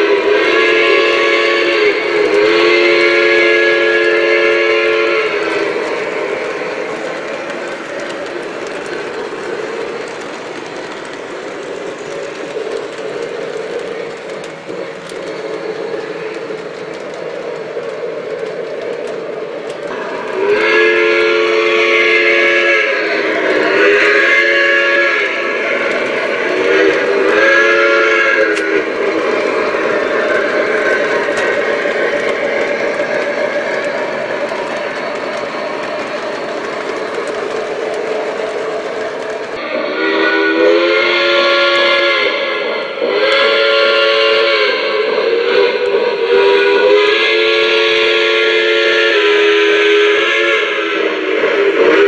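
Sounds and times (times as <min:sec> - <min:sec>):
steam whistle blasts: 0:00.0 - 0:06.8, 0:19.9 - 0:33.8, 0:39.6 - 0:52.0
model train running: 0:00.0 - 0:52.0.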